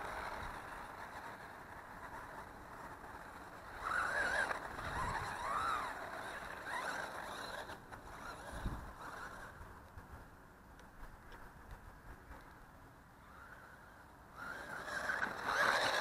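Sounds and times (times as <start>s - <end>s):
electric motor whining: 0.0s - 9.6s, 13.2s - 16.0s.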